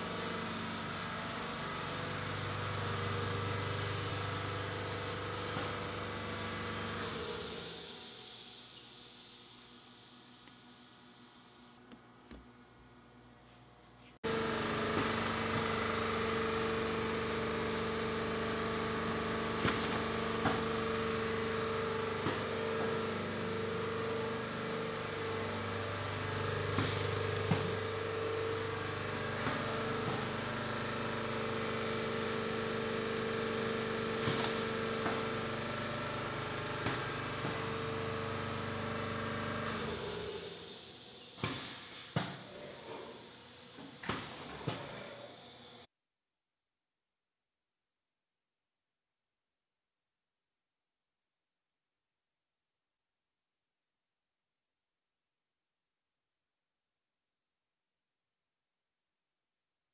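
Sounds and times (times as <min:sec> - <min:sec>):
printing press machine hum: 0:00.0 - 0:11.9, 0:14.3 - 0:45.8.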